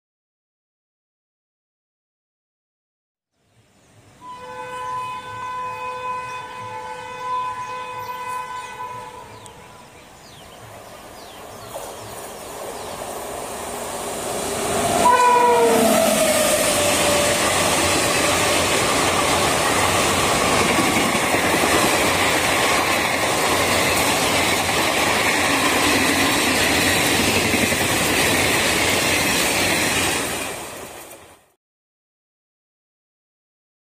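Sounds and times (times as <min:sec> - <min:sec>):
locomotive air horn: 0:04.2 - 0:10.0, 0:14.8 - 0:17.5
train wheels clattering: 0:16.2 - 0:31.4.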